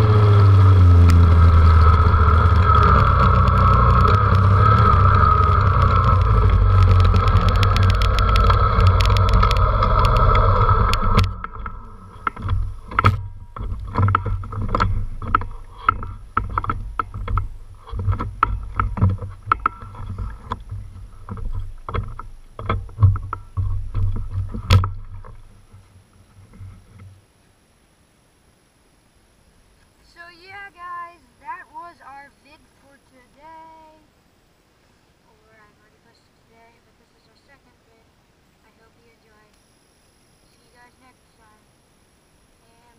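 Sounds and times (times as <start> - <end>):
dirt bike engine running: 0.0 - 26.9
knocks and rattles on rough ground: 0.0 - 27.2.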